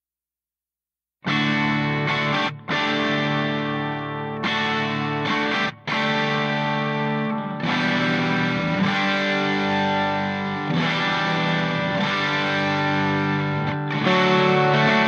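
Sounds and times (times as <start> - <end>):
distorted electric guitar chords: 1.3 - 15.0.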